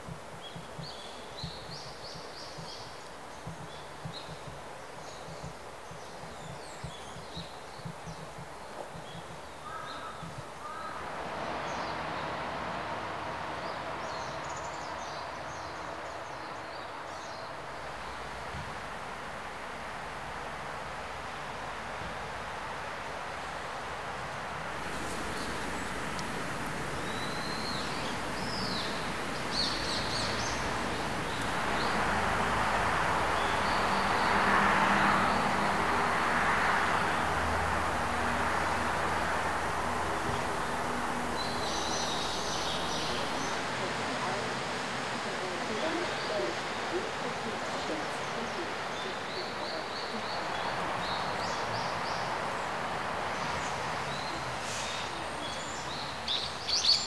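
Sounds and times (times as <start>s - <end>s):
small birds chirping: 0.0s - 11.0s, 24.9s - 44.4s, 45.0s - 57.0s
steady rushing hiss: 0.0s - 57.0s.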